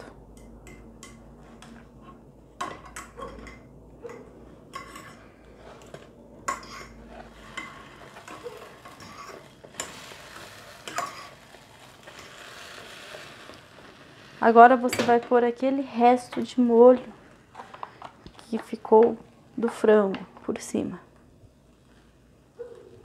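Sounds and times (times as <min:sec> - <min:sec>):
metal fork scraping frying pan: 0:04.7 - 0:14.5.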